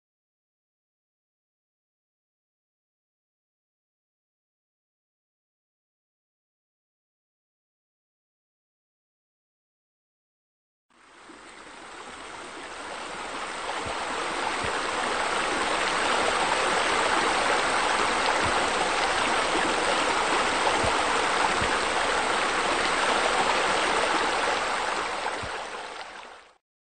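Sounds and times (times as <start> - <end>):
faint low gurgles: 10.9 - 26.6
flowing water rushing: 10.9 - 26.6.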